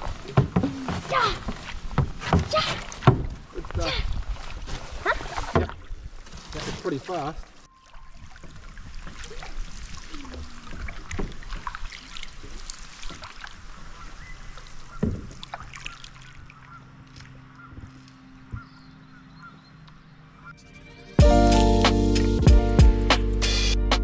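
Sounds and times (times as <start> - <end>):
paddle strokes and splashes: 0.0 - 18.8
birds calling: 13.7 - 20.6.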